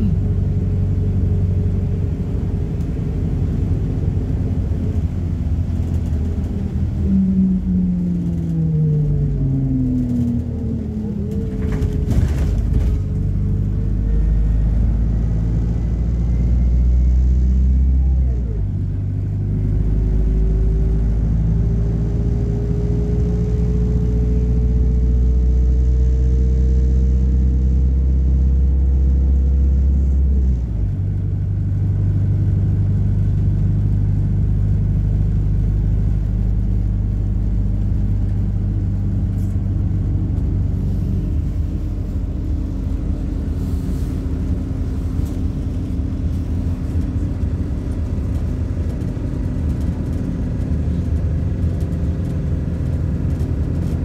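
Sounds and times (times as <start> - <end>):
rising whine: 0.0 - 18.6
bus engine rumble: 0.0 - 54.0.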